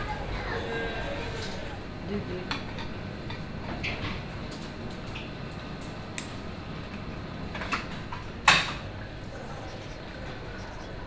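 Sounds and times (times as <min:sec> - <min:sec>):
room hum: 0:00.0 - 0:11.0.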